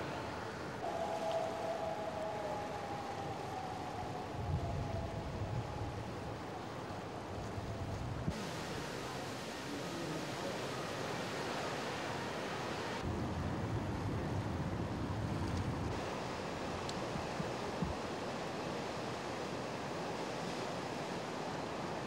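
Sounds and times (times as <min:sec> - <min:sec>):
river rushing: 0:00.0 - 0:13.1, 0:15.9 - 0:22.0
wind buffeting microphone: 0:01.3 - 0:08.4.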